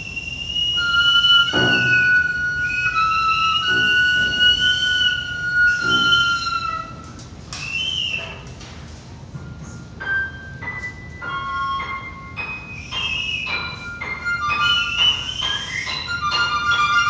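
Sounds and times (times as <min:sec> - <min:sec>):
instrumental music held tones: 0:00.4 - 0:07.2, 0:09.6 - 0:17.0.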